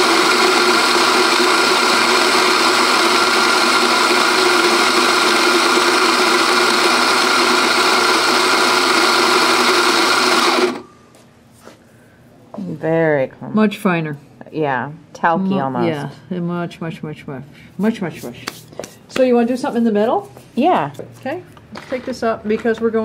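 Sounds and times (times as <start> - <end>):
coffee grinder grinding beans: 0.0 - 10.8.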